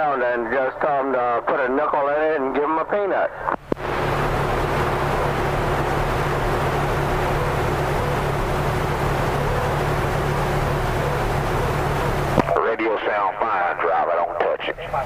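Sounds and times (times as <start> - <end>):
radio static hiss: 0.0 - 15.0
low droning hum: 3.6 - 12.6.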